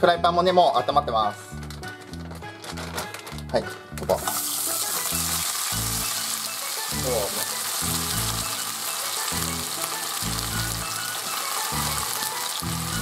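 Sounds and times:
fish sizzling in a frying pan: 4.2 - 13.0.

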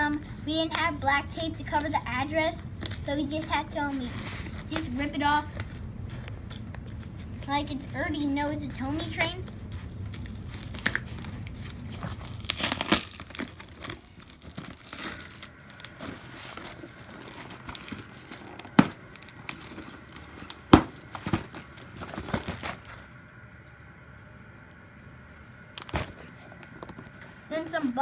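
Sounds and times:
cardboard and tape tearing: 9.0 - 23.0.

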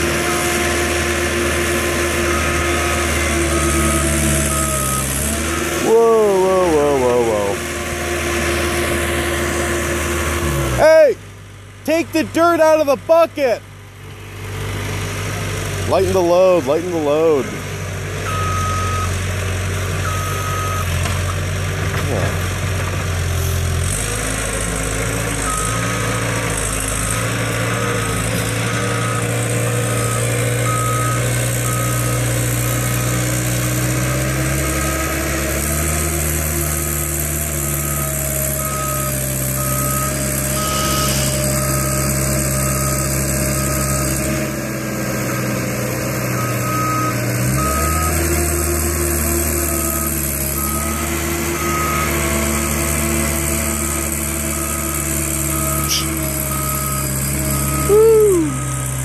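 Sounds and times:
diesel engine running under load: 0.0 - 59.0
backup alarm beeping: 37.9 - 43.0.

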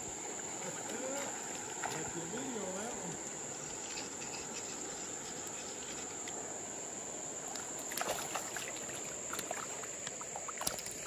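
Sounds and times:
high insect trill: 0.0 - 11.0
moving water: 0.0 - 11.0
fish splashing in water: 0.4 - 2.6, 7.4 - 11.0.

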